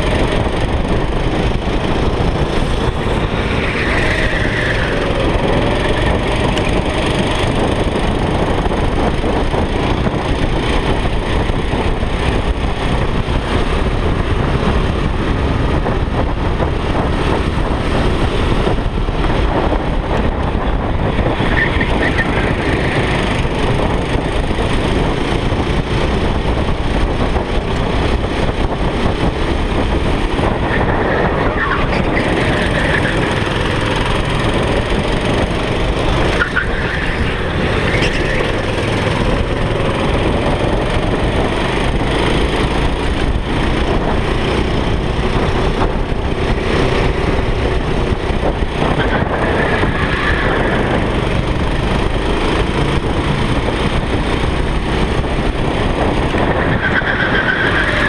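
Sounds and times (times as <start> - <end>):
go-kart engine running: 0.0 - 58.0.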